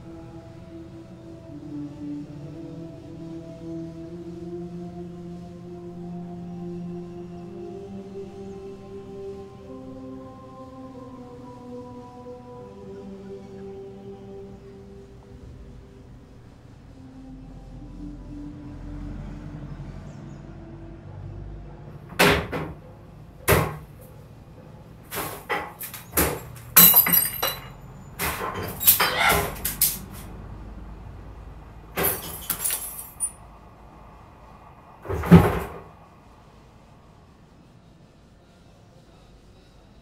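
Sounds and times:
furniture banging and clattering: 23.5s - 23.9s, 25.1s - 30.2s, 35.1s - 35.9s.

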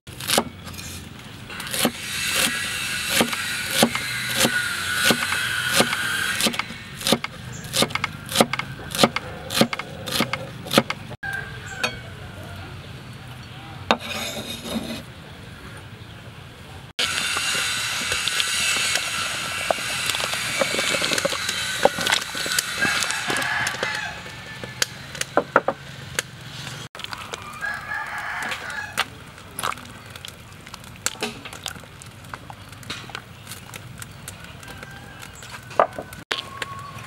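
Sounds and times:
rooster crowing: 11.2s - 12.7s, 22.5s - 25.4s, 27.3s - 29.1s, 34.4s - 37.0s.

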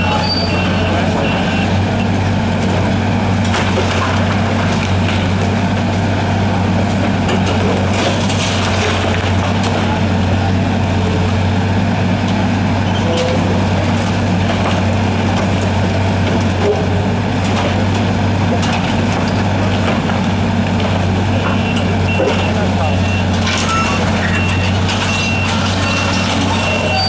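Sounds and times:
metal and concrete debris crunching: 0.0s - 10.1s, 12.9s - 27.0s
excavator diesel engine running: 0.0s - 27.0s.

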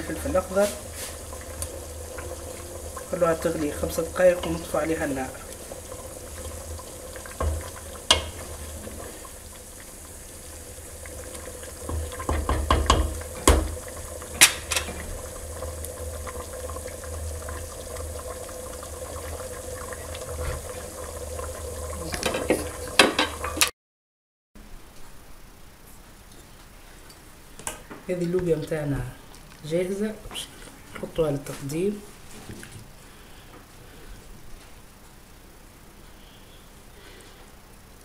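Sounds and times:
stew bubbling in a pot: 0.0s - 23.7s
sharp clicks and knocks: 11.9s - 13.8s.

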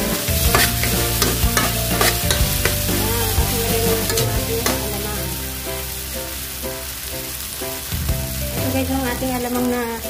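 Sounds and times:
utensil scraping a pan: 0.0s - 5.2s
food sizzling in a pan: 0.0s - 10.0s.

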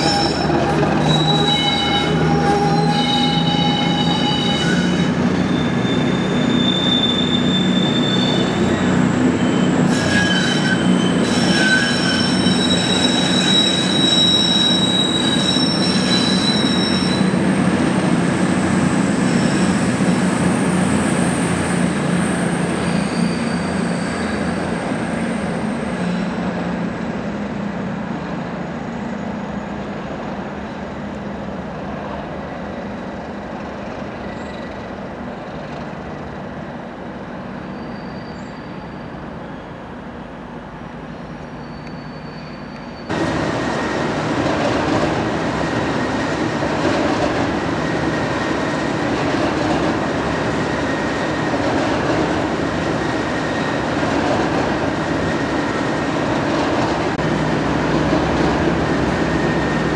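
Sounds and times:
wheels squealing: 0.0s - 17.4s, 20.6s - 26.2s, 37.6s - 39.8s, 41.5s - 43.2s
diesel locomotive engine drone: 0.0s - 59.9s.

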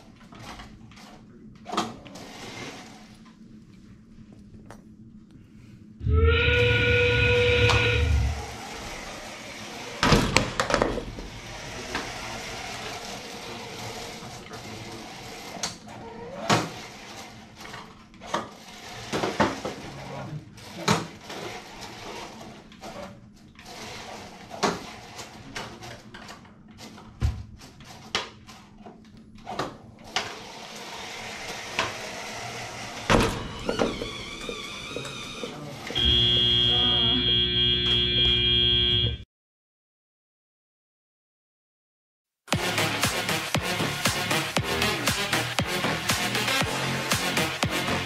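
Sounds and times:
knocks and clacks of mechanisms: 0.0s - 3.4s, 7.4s - 36.1s, 42.5s - 48.0s
robot motors humming: 4.4s - 22.6s, 30.4s - 39.2s.

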